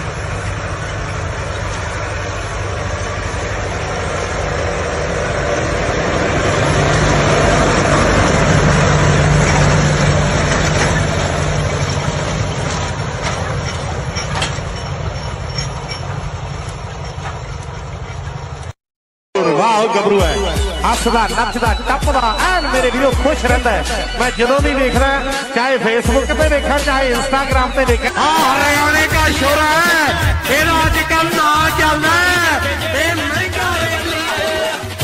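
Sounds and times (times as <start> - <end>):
tractor diesel engine running: 0.0 - 18.8, 26.1 - 35.0.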